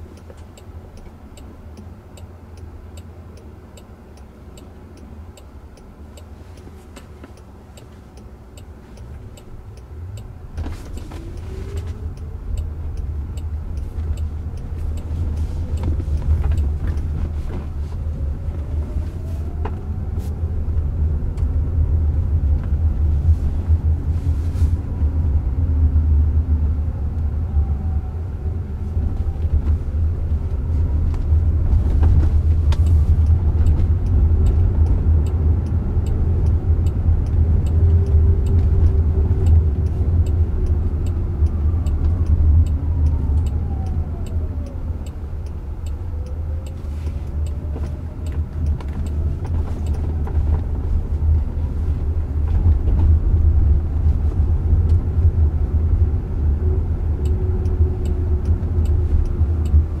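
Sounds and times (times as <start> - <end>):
faint regular ticking: 0.0 - 18.3, 32.5 - 52.3
tyre and road rumble: 8.8 - 26.5, 28.6 - 60.0.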